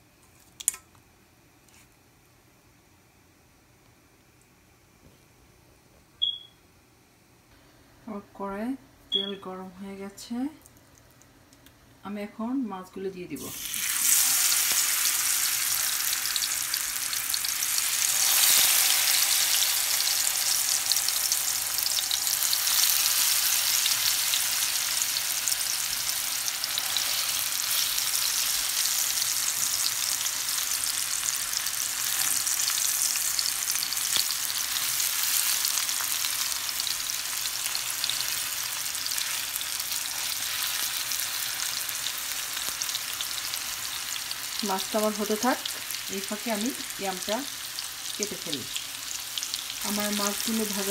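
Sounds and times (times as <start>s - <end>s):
fish sizzling in hot oil: 13.5s - 50.9s.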